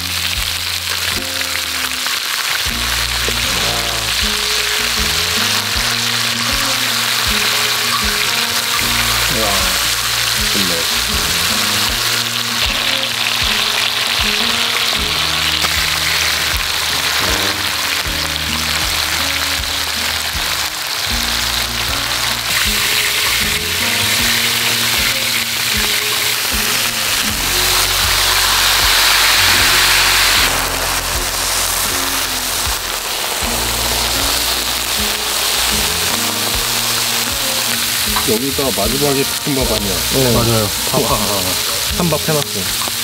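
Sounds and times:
background music: 0:00.0 - 0:43.0
meat sizzling on a griddle: 0:00.0 - 0:43.0.

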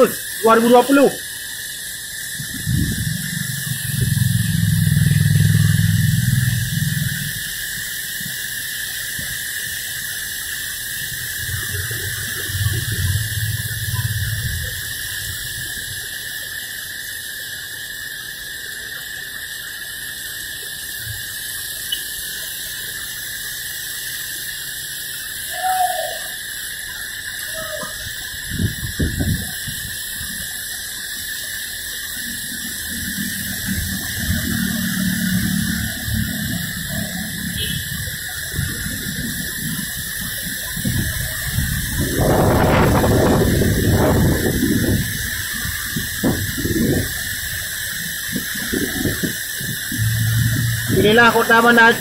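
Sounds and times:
engine hum: 0:02.2 - 0:15.8, 0:32.1 - 0:52.0
heavy rain falling: 0:02.4 - 0:16.4, 0:31.8 - 0:52.0
vehicles passing on wet road: 0:11.4 - 0:15.2, 0:32.6 - 0:45.0, 0:48.0 - 0:52.0.

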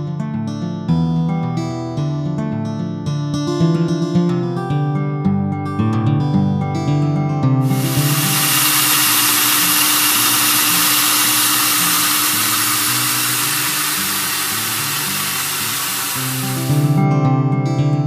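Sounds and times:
drill motors whirring: 0:07.6 - 0:16.8.

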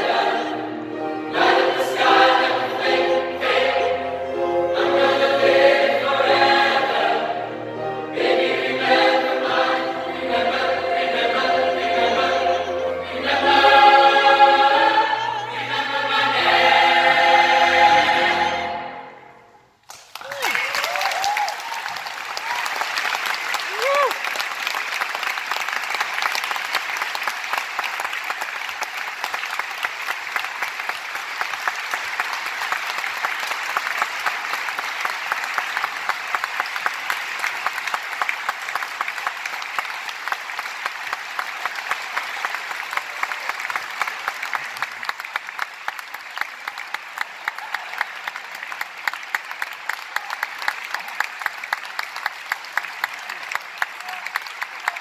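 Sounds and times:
audience applauding: 0:19.8 - 0:55.0.

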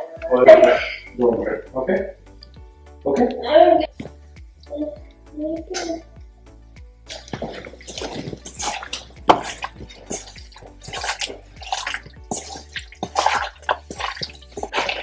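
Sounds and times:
wet squelching of meat in marinade: 0:07.0 - 0:15.0.

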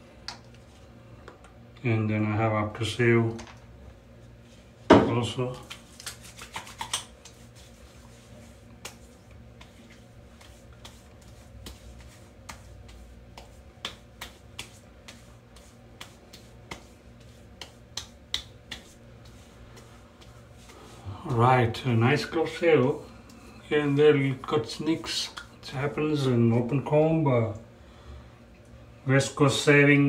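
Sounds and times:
fingertips patting skin: 0:05.6 - 0:20.8.

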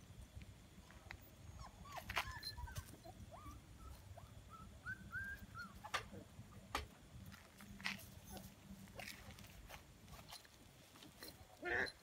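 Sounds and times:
small dog whimpering: 0:01.6 - 0:05.9.

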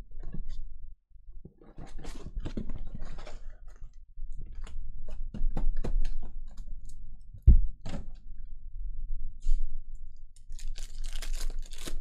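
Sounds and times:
foil packs crinkling: 0:10.5 - 0:12.0.

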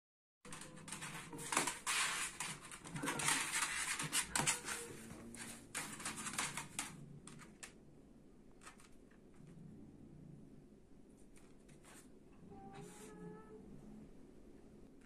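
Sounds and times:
animals scuffling on hard floor: 0:00.5 - 0:06.9.

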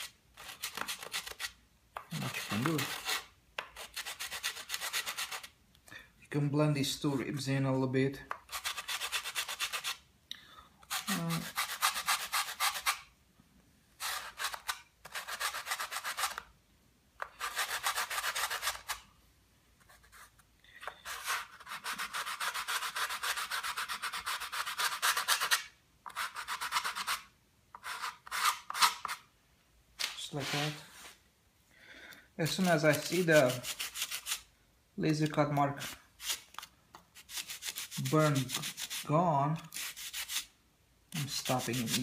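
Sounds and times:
sandpaper rubbing wood: 0:00.0 - 0:05.5, 0:08.5 - 0:10.0, 0:10.9 - 0:13.0, 0:14.0 - 0:16.4, 0:17.4 - 0:19.0, 0:21.0 - 0:29.2, 0:30.3 - 0:31.2, 0:32.5 - 0:34.5, 0:37.2 - 0:39.1, 0:39.7 - 0:40.5, 0:41.2 - 0:42.0.

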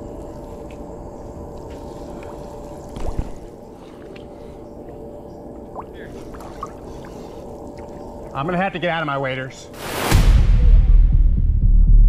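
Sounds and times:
river water sloshing and gurgling: 0:02.0 - 0:08.4.

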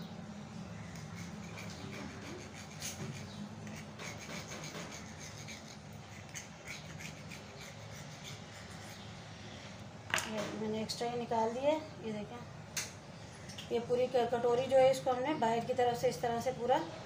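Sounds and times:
steady low hum: 0:00.0 - 0:17.0
knife scraping steel bowl: 0:00.9 - 0:09.0.

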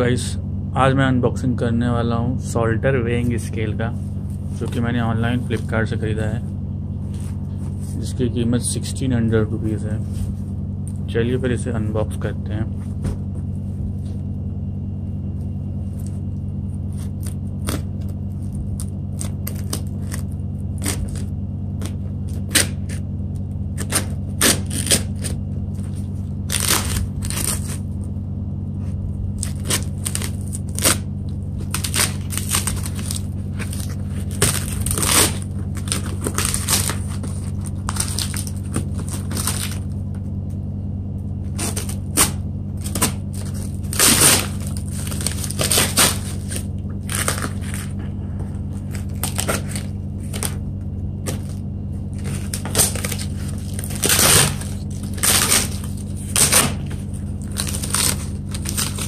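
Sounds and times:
low hum: 0:00.0 - 0:59.0
plastic film crackling and tearing: 0:15.8 - 0:23.0, 0:23.6 - 0:28.1, 0:28.9 - 0:40.0, 0:41.4 - 0:50.6, 0:51.2 - 0:59.0.

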